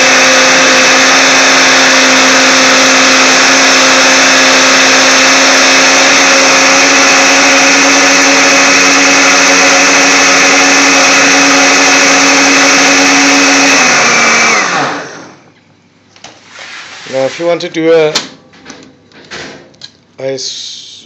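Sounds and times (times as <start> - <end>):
blender motor running: 0.0 - 15.5
blender motor winding down: 0.0 - 15.5.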